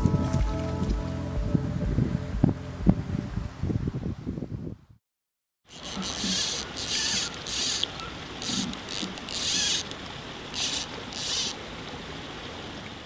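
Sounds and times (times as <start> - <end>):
fly reel drag buzzing: 5.7 - 11.6.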